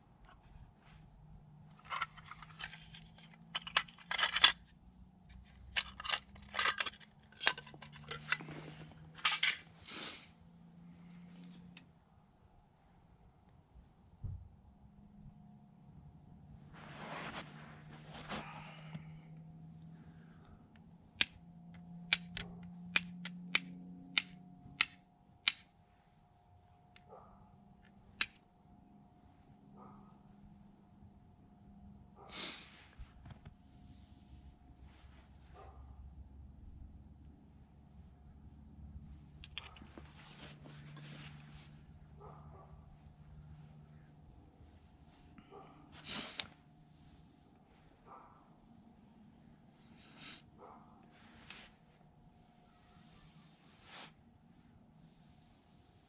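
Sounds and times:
hands handling wooden sticks: 0.2s - 9.8s, 16.7s - 19.4s, 39.4s - 42.4s
metal tin clicking: 1.8s - 4.6s, 5.8s - 8.4s
scissor snips: 22.1s - 25.7s.

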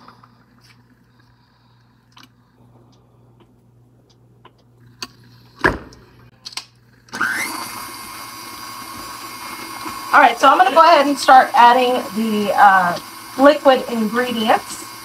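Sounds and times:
stand mixer motor whining: 7.1s - 15.0s.

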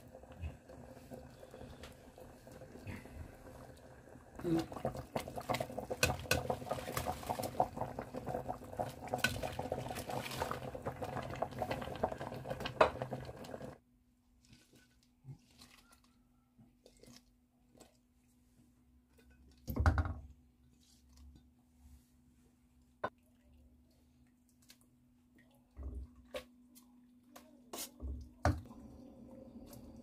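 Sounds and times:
soup bubbling at a simmer: 0.0s - 13.8s, 28.6s - 30.0s.

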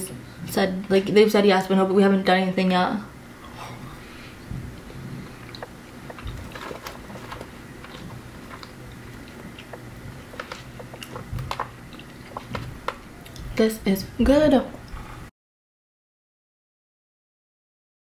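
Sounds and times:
person chewing a french fry: 4.7s - 13.6s.

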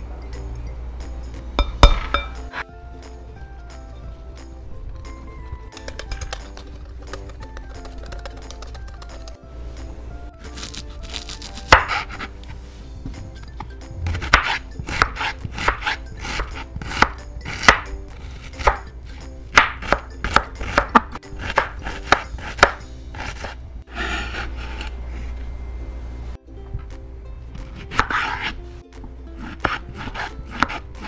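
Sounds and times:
knife chopping on wooden board: 11.2s - 12.3s, 14.0s - 18.9s, 19.5s - 24.9s, 27.7s - 28.6s, 29.4s - 31.0s
knife blade scraping board: 11.2s - 12.5s, 14.0s - 18.8s, 19.8s - 25.4s, 27.6s - 28.6s, 29.4s - 31.0s.

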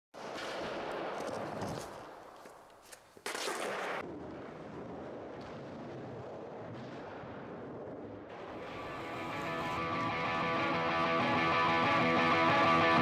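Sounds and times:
skateboard wheels rolling on concrete: 0.2s - 4.1s, 8.2s - 13.0s.

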